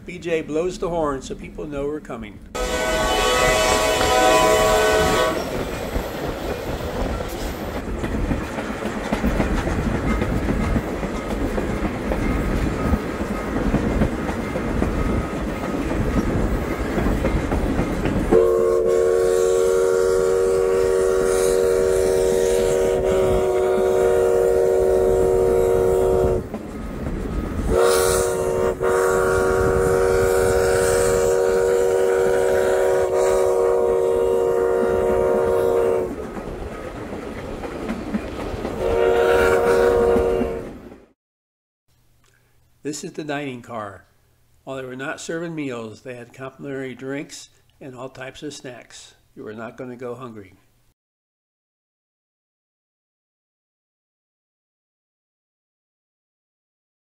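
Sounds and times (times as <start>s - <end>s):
train rolling on track: 2.5s - 19.9s, 21.6s - 41.2s
steam whistle blowing: 2.6s - 5.6s, 18.3s - 26.4s, 27.7s - 36.1s, 38.8s - 40.7s.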